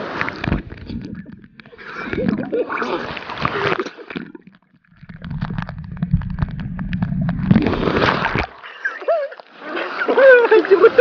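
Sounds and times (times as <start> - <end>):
crackling bubbles: 0.0 - 8.9
muffled waterfall rumble: 5.0 - 8.4
splash: 5.0 - 10.2.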